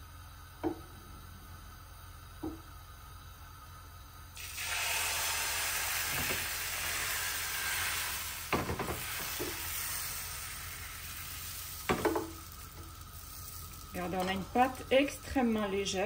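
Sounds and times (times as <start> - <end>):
batter sizzling on hot pan: 4.4 - 16.0.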